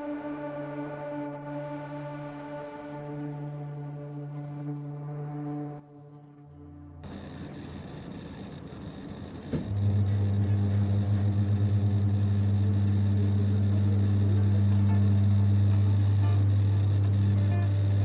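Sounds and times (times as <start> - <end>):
low electrical hum: 6.7 - 18.0
click: 9.4 - 10.4.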